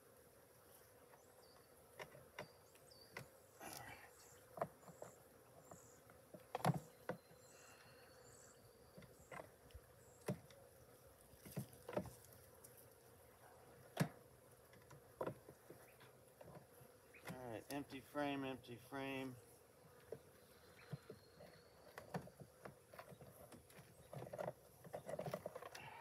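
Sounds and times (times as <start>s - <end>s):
honeybees humming: 0.0s - 26.0s.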